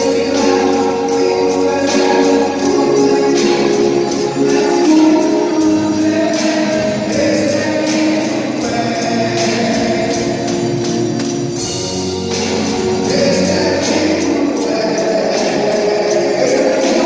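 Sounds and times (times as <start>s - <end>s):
congregation singing a hymn: 0.0s - 17.0s
electronic keyboard: 0.0s - 17.0s
lead singer: 0.0s - 17.0s
tambourine jingling: 0.0s - 17.0s.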